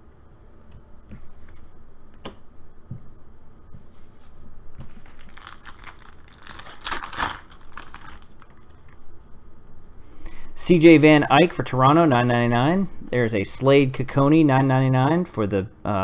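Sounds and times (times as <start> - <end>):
foil wrapper crinkling: 4.9 - 9.0.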